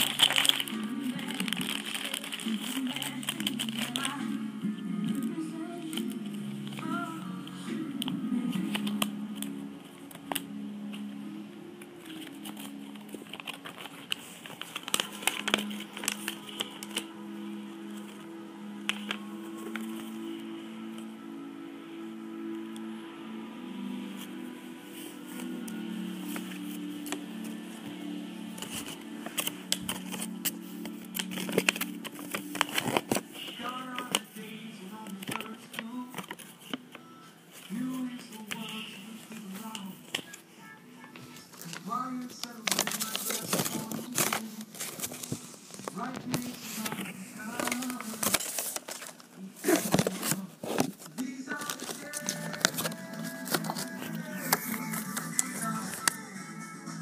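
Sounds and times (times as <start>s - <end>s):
plastic packaging crinkling: 0.0s - 7.2s, 12.0s - 20.5s, 28.5s - 40.5s, 41.2s - 56.2s
quiet background music: 0.0s - 57.0s.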